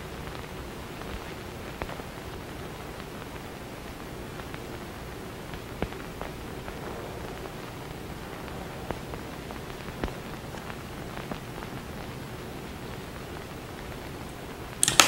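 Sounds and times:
steady hiss: 0.0s - 15.0s
light irregular clicks: 0.2s - 3.5s, 12.9s - 15.0s.

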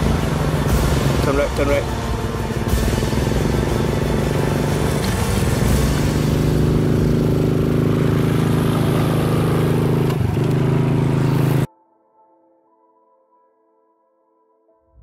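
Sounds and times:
motorcycle engine running: 0.0s - 11.7s
wind and road noise: 0.0s - 11.7s.

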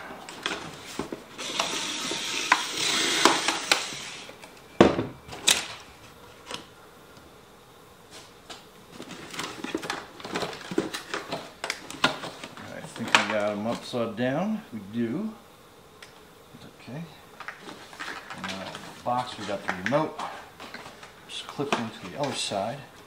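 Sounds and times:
cardboard scraping and rustling: 8.9s - 13.9s, 17.4s - 22.7s.

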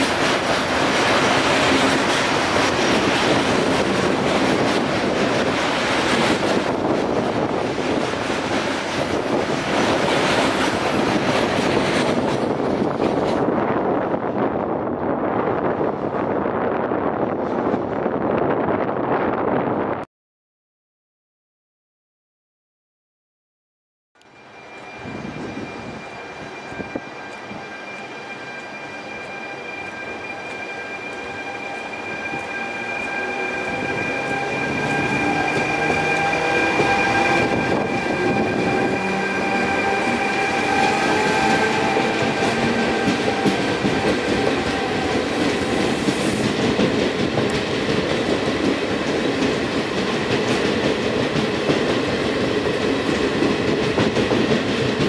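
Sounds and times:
train coaches rail rumble: 0.0s - 18.8s, 24.4s - 55.0s
electric locomotive motor whine: 24.2s - 46.4s.

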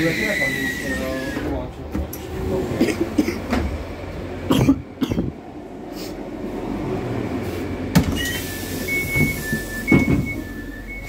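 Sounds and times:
low hum of train coach: 0.0s - 11.0s
two-tone electronic beep: 8.2s - 11.0s
train door knocks and clicks: 9.0s - 10.5s.

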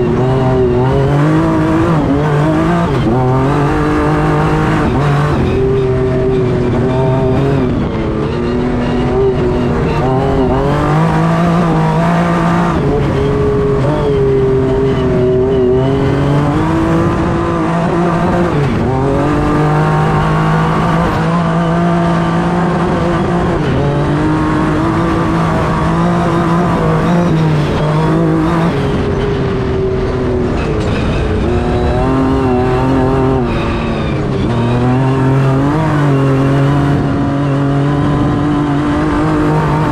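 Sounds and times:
truck engine running hard: 0.0s - 39.9s.

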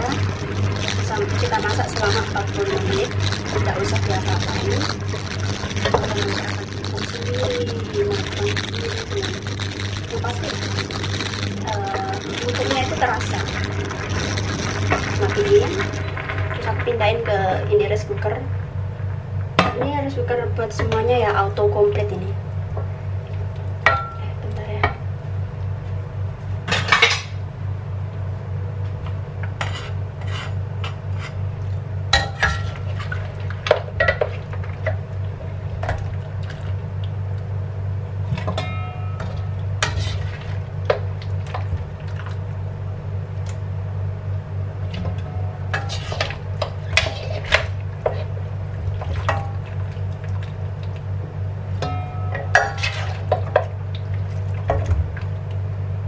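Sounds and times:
steady low hum: 0.0s - 56.0s
utensils scraping a metal wok: 29.6s - 31.4s, 39.8s - 40.4s, 45.8s - 48.4s.

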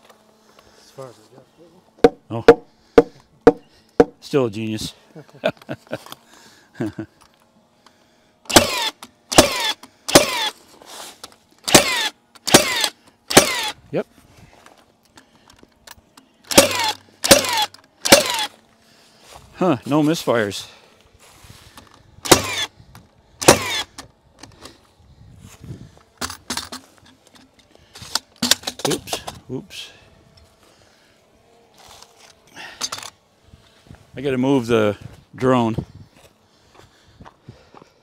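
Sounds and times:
nailer motor whirring: 7.2s - 13.9s, 15.0s - 18.8s, 21.7s - 25.0s, 31.4s - 33.6s
nail gun firing: 8.5s - 10.6s, 11.6s - 13.8s, 16.5s - 18.5s, 22.2s - 22.7s, 23.4s - 24.1s, 28.1s - 29.1s.

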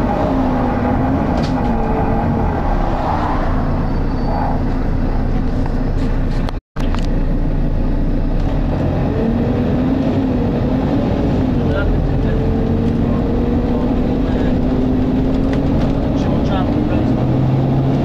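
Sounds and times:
bus diesel engine droning: 3.7s - 18.0s.

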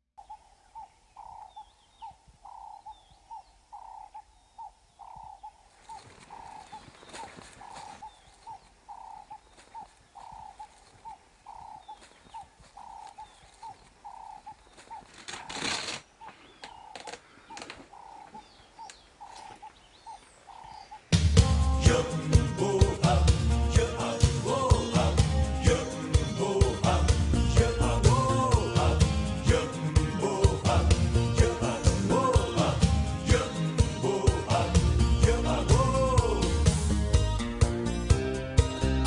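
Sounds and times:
faint bird chirps: 0.2s - 21.2s
bird repeating low note: 0.2s - 21.8s
crackling rustling noise: 5.5s - 21.0s.

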